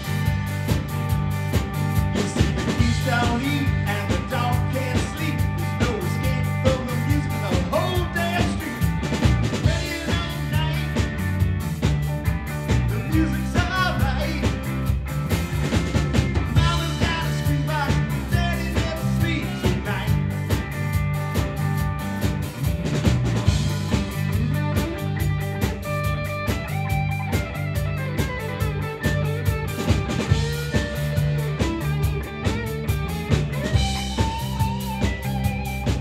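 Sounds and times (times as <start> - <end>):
live rock band playing: 0.0 - 36.0
lead guitar melody bending: 23.4 - 36.0.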